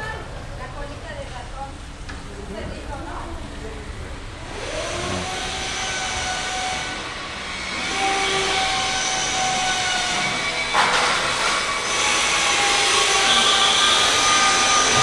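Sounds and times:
machine rushing and whining: 0:04.4 - 0:10.7.

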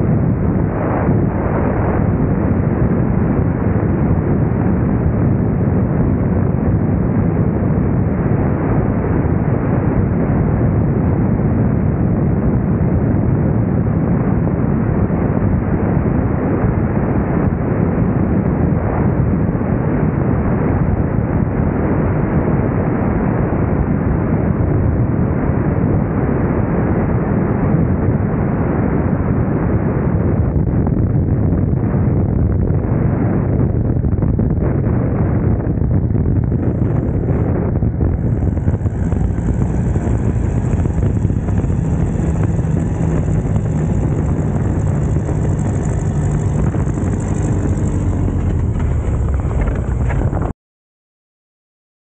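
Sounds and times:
airflow buffeting microphone: 0:00.0 - 0:50.5
light airplane engine and propeller: 0:00.0 - 0:50.5.

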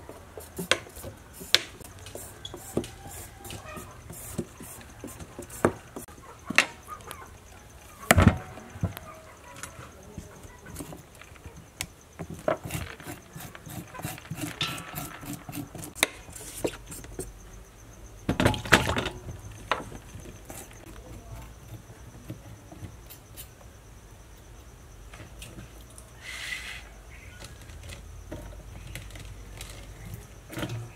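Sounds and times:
faint steady high whine: 0:00.0 - 0:30.9
metal spoon scraping seeds: 0:00.3 - 0:06.1, 0:12.2 - 0:17.4.

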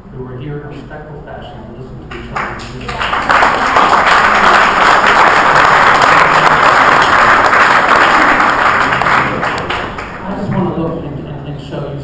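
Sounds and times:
audience applauding: 0:02.1 - 0:10.7.

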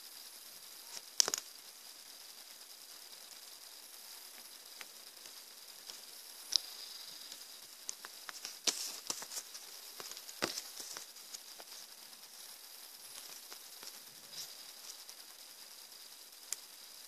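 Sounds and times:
faint high whine: 0:00.0 - 0:17.0
plastic bag and paper rustling: 0:08.3 - 0:11.4.

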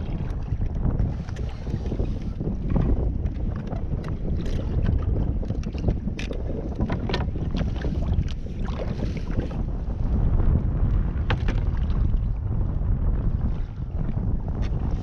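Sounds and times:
water slapping against hull: 0:00.0 - 0:15.0
wind on microphone: 0:00.0 - 0:15.0
boat gear clicks and knocks: 0:02.6 - 0:08.4, 0:11.3 - 0:11.7.

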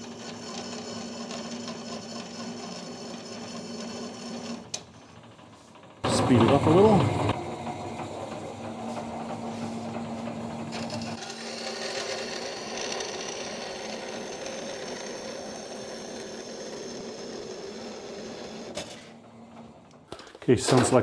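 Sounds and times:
machine running noise: 0:00.0 - 0:20.1
bandsaw cutting steel: 0:06.0 - 0:08.8, 0:10.7 - 0:19.2.

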